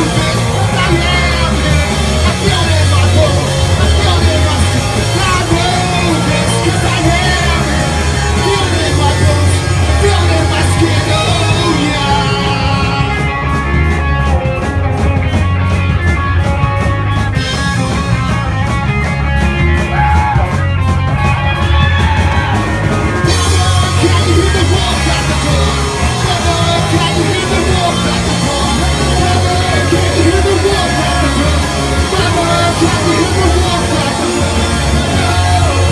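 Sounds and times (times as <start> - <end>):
person singing: 0.0 - 13.7, 23.2 - 35.9
punk rock band playing: 0.0 - 35.9.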